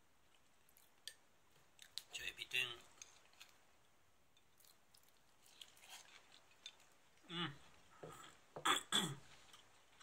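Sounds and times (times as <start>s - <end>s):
person humming: 7.3s - 8.3s.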